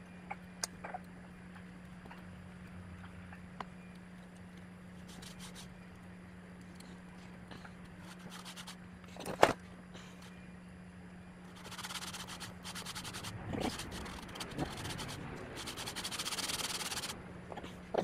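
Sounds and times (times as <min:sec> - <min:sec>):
steady low hum: 0:00.0 - 0:18.0
scraping and rubbing metal parts: 0:08.0 - 0:09.4, 0:11.5 - 0:17.2.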